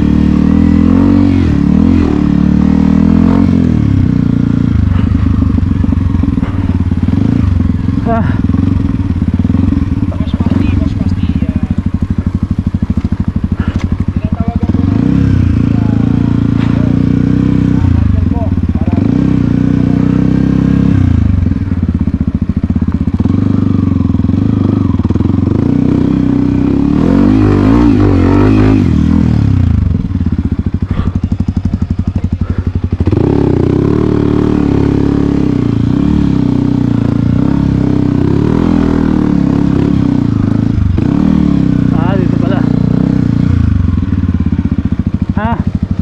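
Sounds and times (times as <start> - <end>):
dirt bike engine revving: 0.0 - 46.0.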